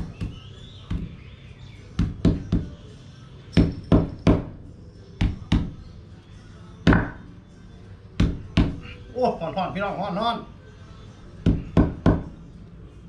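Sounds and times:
hide pounded on wooden block: 6.9 - 7.2.

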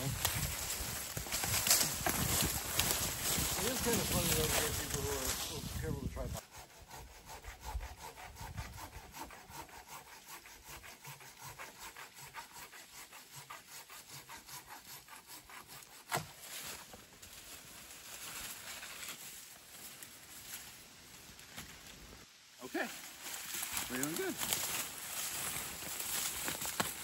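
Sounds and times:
hand saw cutting wood: 0.0 - 17.0, 23.2 - 27.0.

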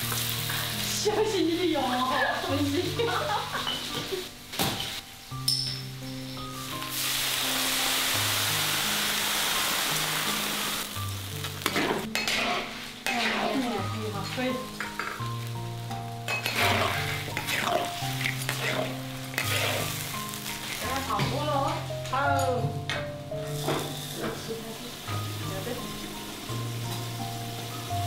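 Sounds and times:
crayfish sizzling in oil: 0.0 - 28.0
soft background music: 0.0 - 28.0
metal spatula scraping wok: 11.6 - 15.4, 16.2 - 21.1.

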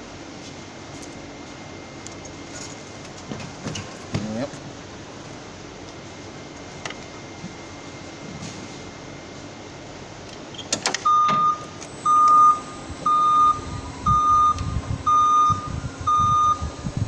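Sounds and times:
forklift engine running: 0.0 - 17.0
backup alarm beeping: 11.0 - 17.0.

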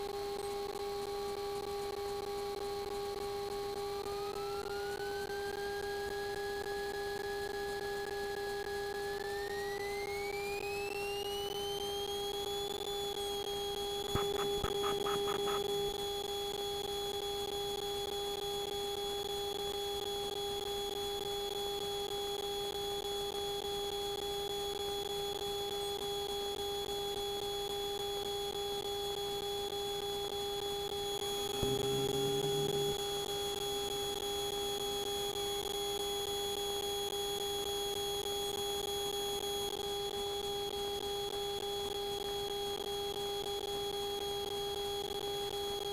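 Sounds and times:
high-pitched electrical whine: 0.0 - 21.6, 22.2 - 45.4
low hum: 14.1 - 16.0, 31.4 - 33.3
rapid buzzing rattle: 14.2 - 16.0.

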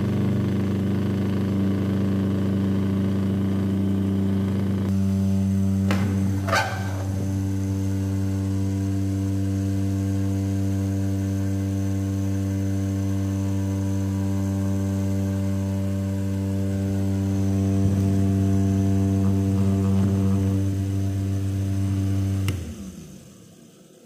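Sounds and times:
handheld fan humming: 3.5 - 23.3
handling knock: 5.9 - 7.3.

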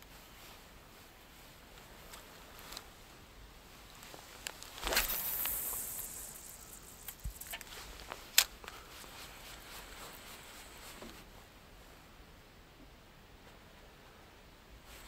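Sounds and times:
brief rustling hiss: 4.0 - 11.3.

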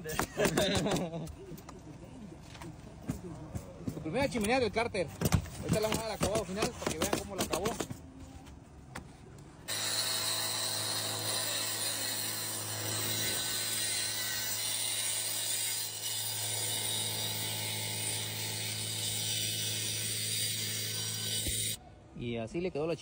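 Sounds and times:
angle grinder cutting brick: 9.7 - 21.8.

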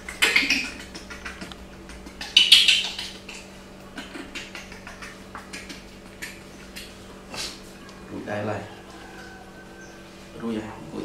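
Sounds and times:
smacking clicks from teats: 0.0 - 7.0
baby monkeys sucking bottles: 0.0 - 7.8
faint steady hum: 0.0 - 11.0.

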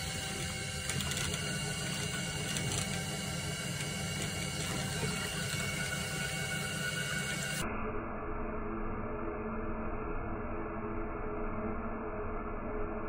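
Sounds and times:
potter's wheel whirring: 0.0 - 7.6.

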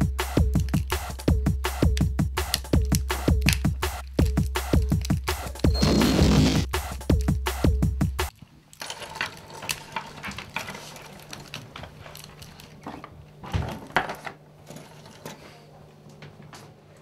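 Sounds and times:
small hard objects clinking: 8.7 - 12.8.

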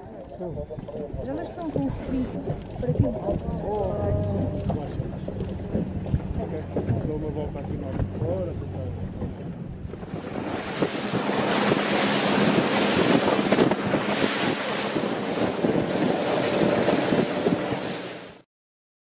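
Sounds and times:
boat engine running low: 0.0 - 18.4
wind rushing over microphone: 1.1 - 18.4
water hissing past boat: 9.9 - 18.4.

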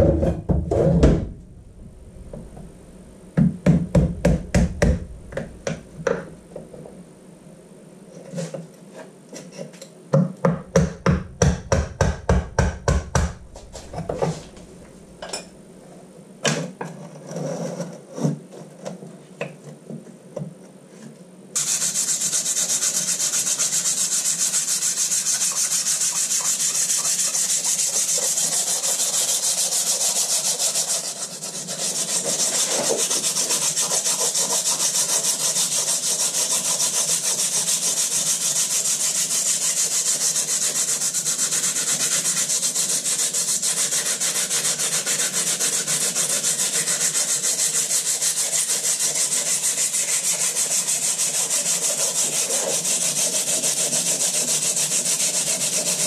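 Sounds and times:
hand sanding scratching: 3.9 - 6.5, 10.7 - 15.2, 21.6 - 56.0.

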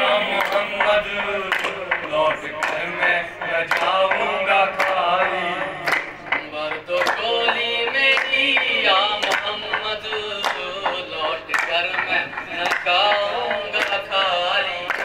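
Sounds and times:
hand claps: 0.0 - 15.0
men singing: 0.0 - 15.0.

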